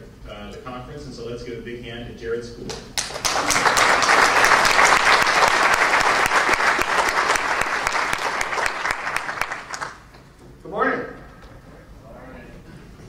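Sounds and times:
crowd applauding: 0:03.0 - 0:10.1.

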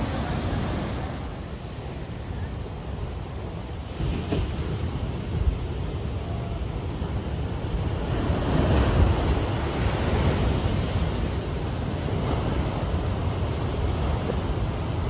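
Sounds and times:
ocean waves crashing on walls: 0:00.0 - 0:15.0
wind buffeting the microphone: 0:00.0 - 0:15.0.

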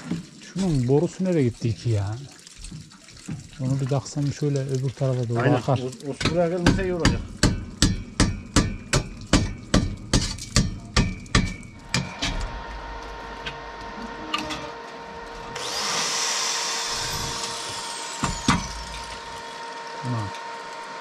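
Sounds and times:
hammer blows: 0:10.6 - 0:15.8
machine hum: 0:11.6 - 0:21.0
loud rushing whir: 0:11.8 - 0:19.7.

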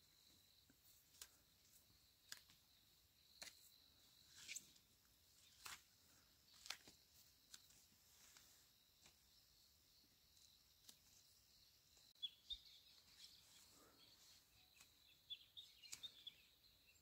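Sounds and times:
faint sharp clicks: 0:15.8 - 0:16.2.

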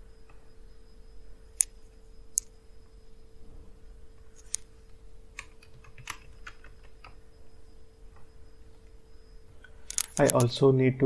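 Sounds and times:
computer keyboard clicking: 0:05.4 - 0:07.2.

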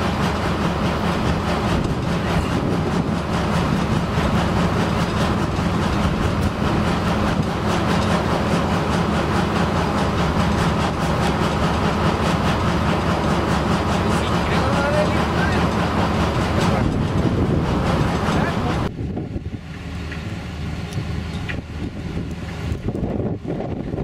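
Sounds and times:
diesel engine drone: 0:00.0 - 0:24.0.

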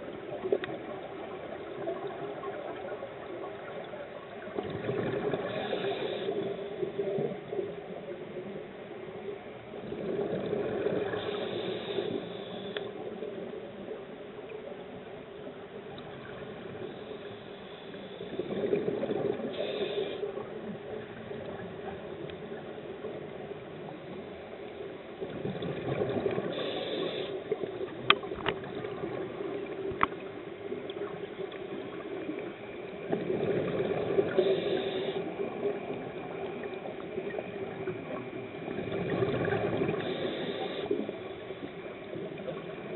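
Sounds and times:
steady underwater hiss: 0:00.0 - 0:42.9
exhaled bubbles surging: 0:04.5 - 0:05.8, 0:25.2 - 0:26.7, 0:28.2 - 0:29.9, 0:33.0 - 0:34.7, 0:35.3 - 0:40.3
diver breathing through regulator: 0:05.4 - 0:06.8, 0:11.0 - 0:13.0, 0:19.5 - 0:20.3, 0:26.4 - 0:27.5, 0:34.2 - 0:35.4, 0:39.9 - 0:41.1.

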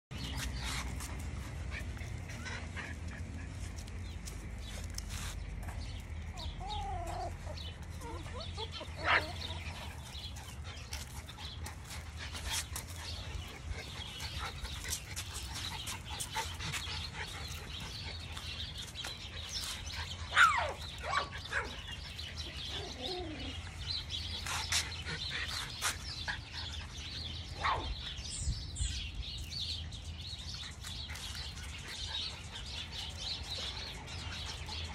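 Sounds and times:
puppies whimpering and squealing: 0:06.0 - 0:27.4.

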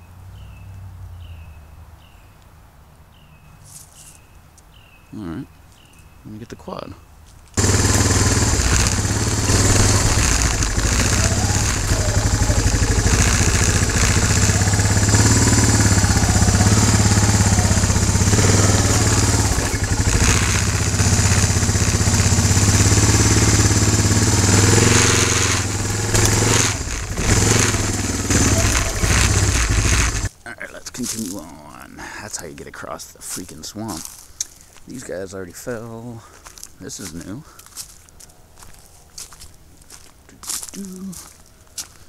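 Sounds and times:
quad bike engine running: 0:07.6 - 0:30.3.

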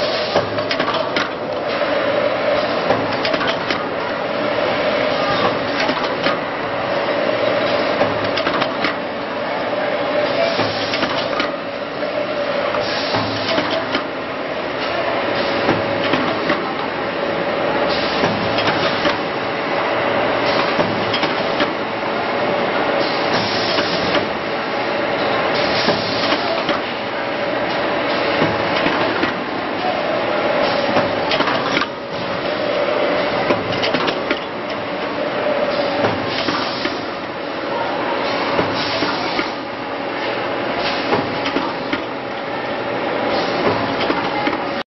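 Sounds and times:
machine clatter: 0:00.1 - 0:01.9, 0:02.5 - 0:04.1, 0:05.1 - 0:06.5, 0:07.6 - 0:09.0, 0:10.5 - 0:11.6, 0:12.8 - 0:14.2, 0:15.4 - 0:16.8, 0:17.9 - 0:19.3, 0:20.4 - 0:21.8, 0:23.0 - 0:24.4, 0:27.7 - 0:29.5, 0:30.6 - 0:32.6, 0:33.2 - 0:34.8, 0:38.2 - 0:39.6, 0:40.2 - 0:42.3, 0:43.3 - 0:44.8.

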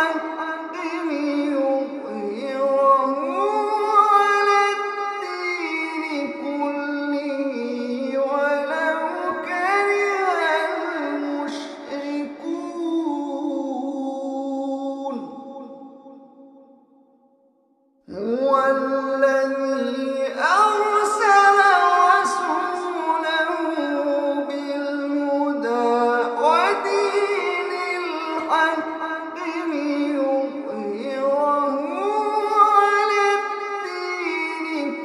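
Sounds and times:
man chanting melodically: 0:00.0 - 0:16.2, 0:18.1 - 0:35.0.

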